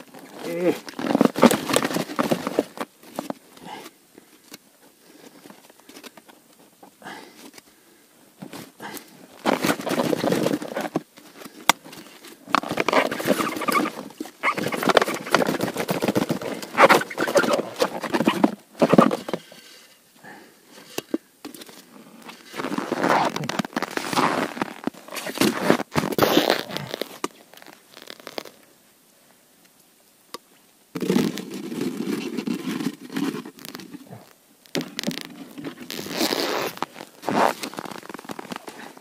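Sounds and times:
plastic bottle crackling: 0.0s - 3.4s, 9.4s - 19.5s, 22.2s - 28.6s, 31.0s - 39.0s.

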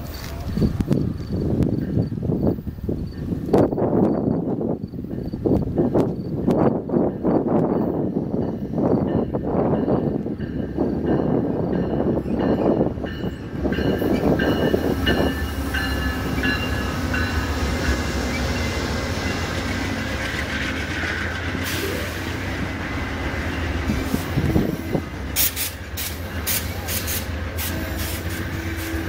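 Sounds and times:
diesel locomotive passing: 0.0s - 29.0s
train wheels rumbling on rails: 0.0s - 29.0s
locomotive bell ringing: 7.8s - 20.0s.

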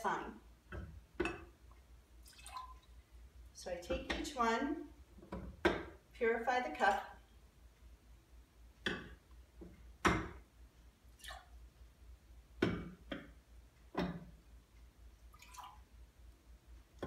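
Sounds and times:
water pouring and dripping: 2.2s - 3.1s, 11.2s - 11.5s, 15.2s - 15.9s.

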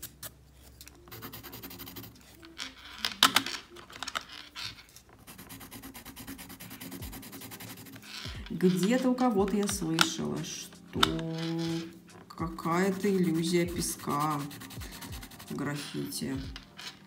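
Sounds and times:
pencil scratching on paper: 0.0s - 2.9s, 5.2s - 17.0s
pencil clattering in metal tin: 2.5s - 5.0s, 7.6s - 14.6s, 15.4s - 17.0s.

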